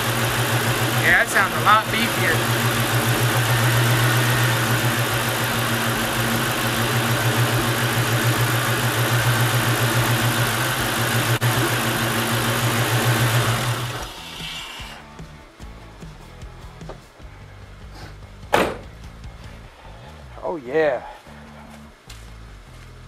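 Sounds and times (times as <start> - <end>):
car engine idling: 0.0 - 14.3.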